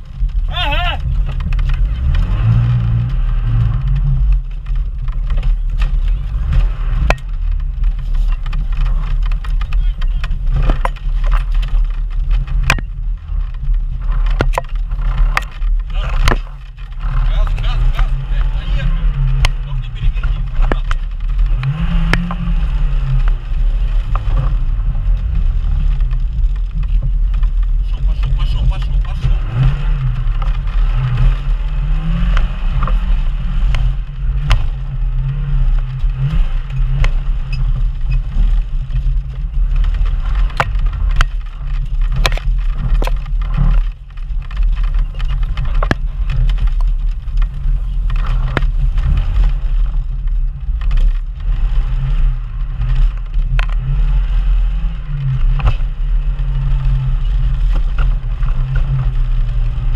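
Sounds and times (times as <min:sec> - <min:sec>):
brush striking vehicle: 0:00.0 - 0:59.9
off-road vehicle engine labouring: 0:00.0 - 0:59.9
vehicle body knocks and clatters: 0:03.9 - 0:18.5, 0:33.7 - 0:51.2.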